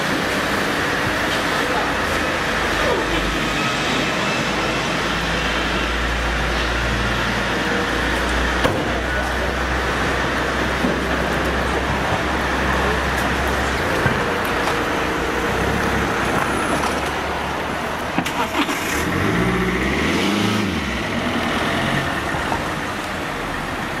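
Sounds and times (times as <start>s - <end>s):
street traffic road noise: 0.0s - 24.0s
car engine rising in pitch: 18.2s - 22.8s.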